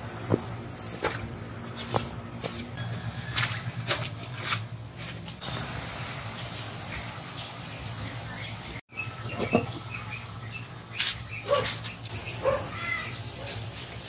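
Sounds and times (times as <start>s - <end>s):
small birds chirping: 1.6s - 2.2s, 5.4s - 14.0s.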